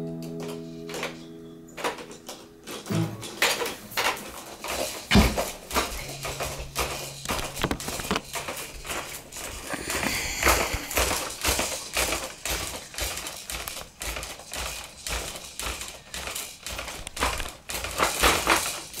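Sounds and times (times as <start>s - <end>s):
camera handling taps and rustles: 1.8s - 12.4s.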